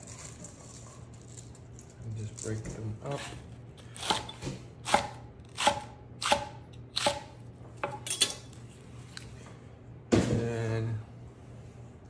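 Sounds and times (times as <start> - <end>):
knife chopping on wooden board: 4.0 - 8.0.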